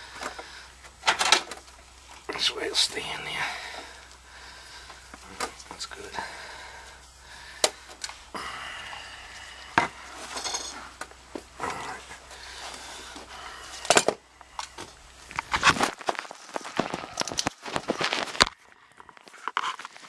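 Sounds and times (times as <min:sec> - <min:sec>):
rustling: 0:09.0 - 0:20.0
metal tools clinking: 0:10.2 - 0:11.0.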